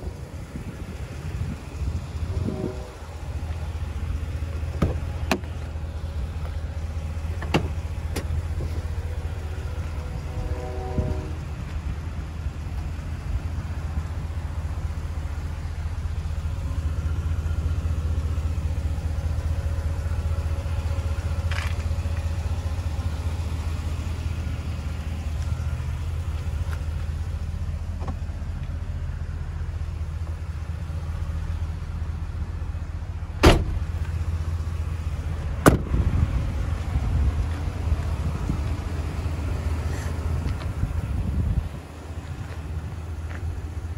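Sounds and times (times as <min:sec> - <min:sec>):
truck engine idling: 0:00.0 - 0:43.9
truck doors slamming: 0:04.7 - 0:05.6, 0:07.3 - 0:08.7, 0:33.4 - 0:34.0, 0:35.6 - 0:36.1.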